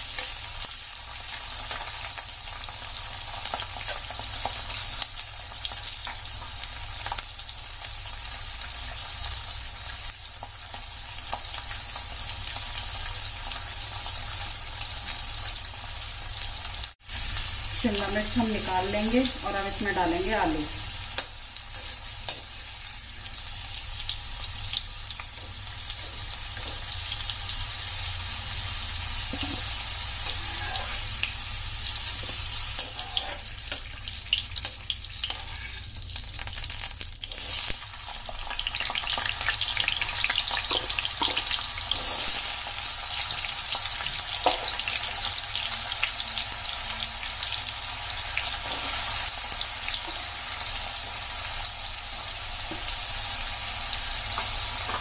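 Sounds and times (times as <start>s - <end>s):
vegetables sizzling in oil: 0.0s - 55.0s
metal spoon scraping a pan: 29.3s - 31.4s, 32.0s - 36.0s.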